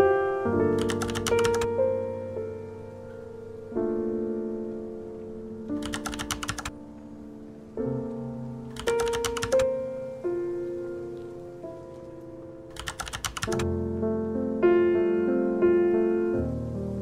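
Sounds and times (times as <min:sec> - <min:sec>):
soft piano chords: 0:00.0 - 0:17.0
rapid even clicking: 0:00.8 - 0:01.7, 0:05.8 - 0:06.7, 0:08.7 - 0:09.7, 0:12.7 - 0:13.7.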